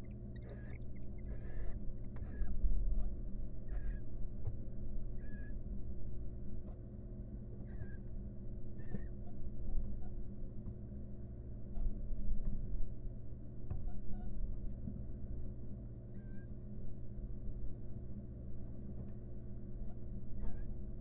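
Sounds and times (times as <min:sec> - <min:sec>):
owl calls: 0:00.0 - 0:02.5, 0:03.7 - 0:04.1, 0:05.2 - 0:05.6, 0:07.6 - 0:08.0, 0:08.8 - 0:09.1, 0:16.2 - 0:16.5, 0:20.4 - 0:20.7
steady low hum: 0:00.0 - 0:21.0.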